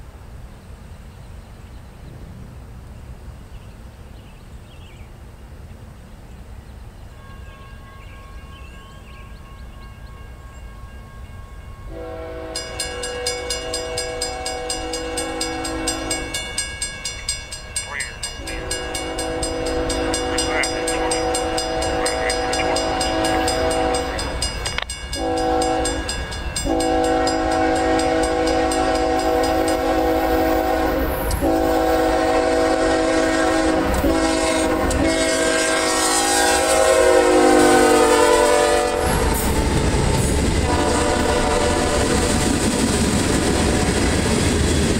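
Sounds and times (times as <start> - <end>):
locomotive horn blasts: 7.1 - 16.8, 17.5 - 42.5.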